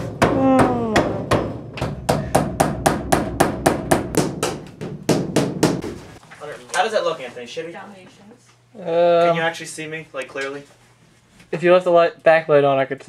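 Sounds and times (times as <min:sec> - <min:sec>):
hammer nailing rapidly: 0:00.0 - 0:06.1.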